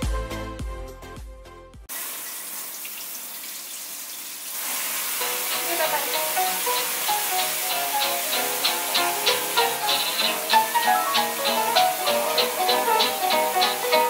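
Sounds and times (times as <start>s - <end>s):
tap water running into sink: 1.9s - 14.0s
plucked string background music: 5.2s - 14.0s.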